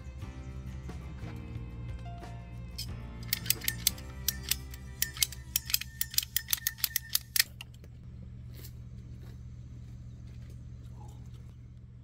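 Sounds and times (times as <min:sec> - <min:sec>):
pipe cutter clicking: 0:03.2 - 0:07.8.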